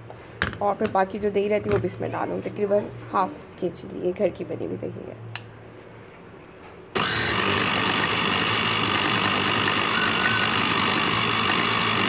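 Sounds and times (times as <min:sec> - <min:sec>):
electric chopper running: 0:07.0 - 0:12.0.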